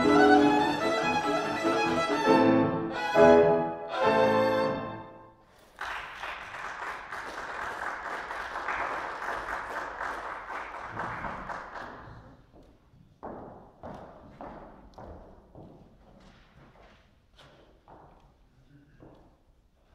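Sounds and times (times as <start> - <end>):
violin and piano chord: 0.0 - 5.3
audience applause: 5.5 - 12.4
footsteps on wooden stage: 11.0 - 19.9.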